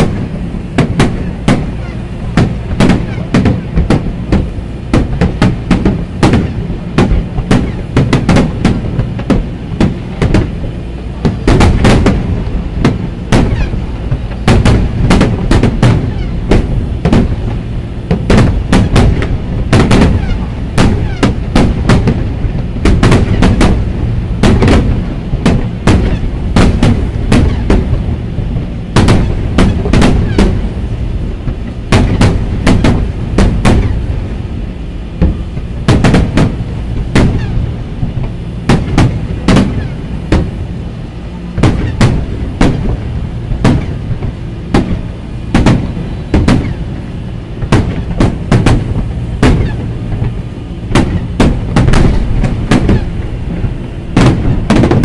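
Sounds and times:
continuous low rumble: 0.0 - 55.0
fireworks shells bursting: 0.8 - 10.6, 11.2 - 30.9, 31.5 - 34.0, 35.2 - 38.1, 47.6 - 55.0.

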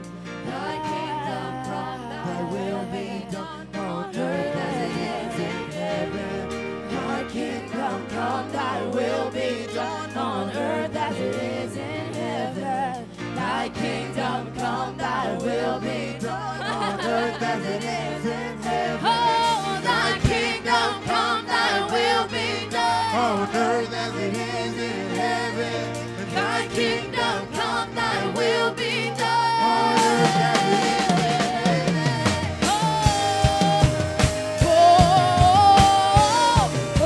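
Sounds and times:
voices singing: 0.4 - 37.0
drums: 18.6 - 22.0, 29.1 - 37.0.

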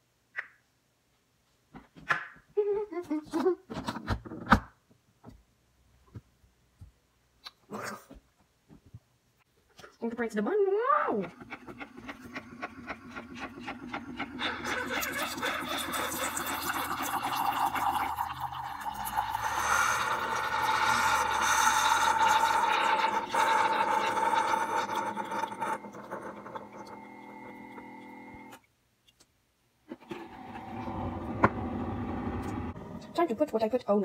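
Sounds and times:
coffee maker humming and hissing: 11.2 - 28.6, 29.9 - 33.2.

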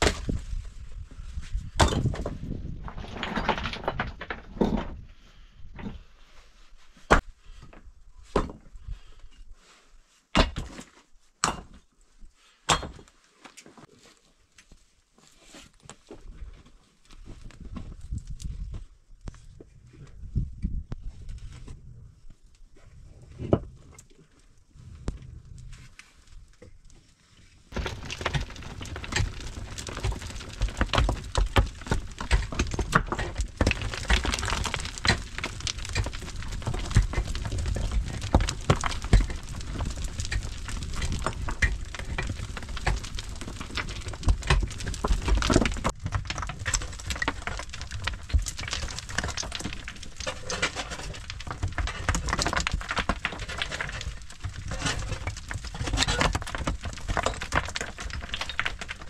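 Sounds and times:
gravel clattering on rocky floor: 0.0 - 5.0, 15.8 - 21.9, 27.7 - 59.0.

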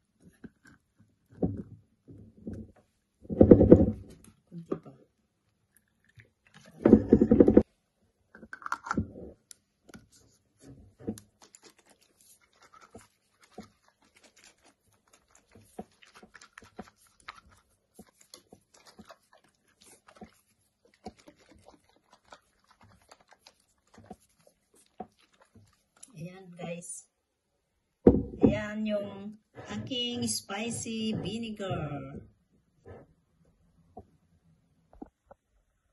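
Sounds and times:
jar cap clicks and taps: 8.4 - 9.0.

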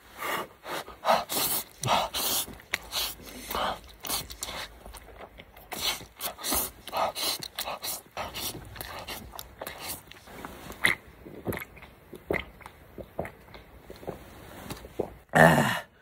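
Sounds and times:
person slurping noodles: 0.1 - 13.4
person swallowing: 10.8 - 15.9.

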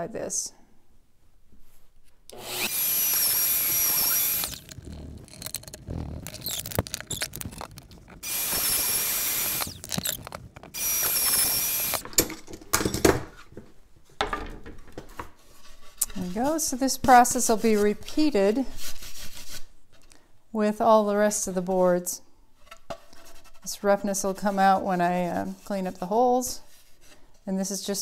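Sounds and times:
router motor whining: 2.3 - 12.0.

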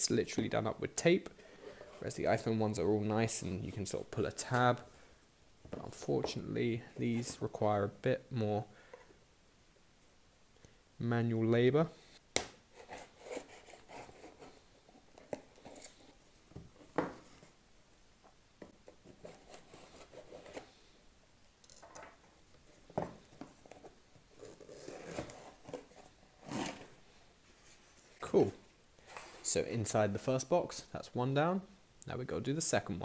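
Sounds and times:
cardboard scraping and rubbing: 24.4 - 27.0.

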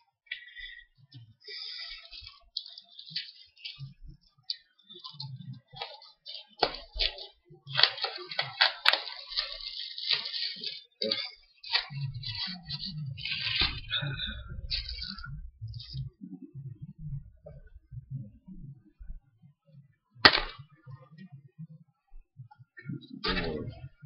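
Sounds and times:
plastic packaging crinkling: 1.4 - 13.9.

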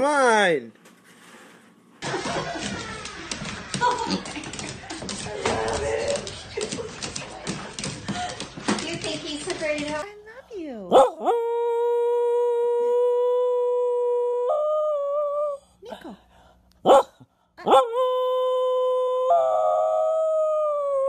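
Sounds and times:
dog howling: 11.0 - 15.6, 17.7 - 21.0.

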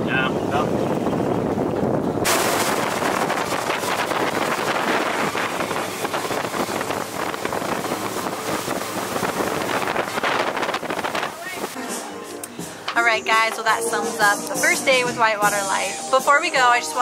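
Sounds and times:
wind buffeting microphone: 0.0 - 11.8
boat engine noise: 0.0 - 17.0
water rushing: 0.0 - 17.0.

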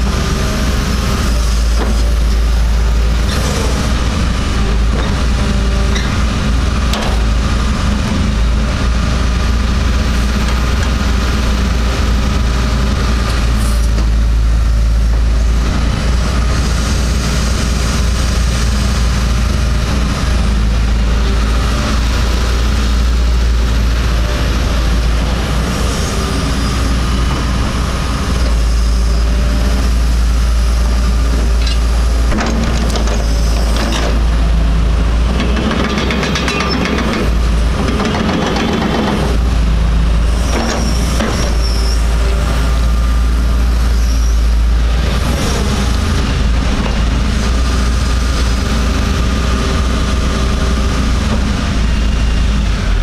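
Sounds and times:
excavator diesel engine: 0.0 - 53.0
knocks and squeaks: 5.9 - 6.2, 35.8 - 37.3.

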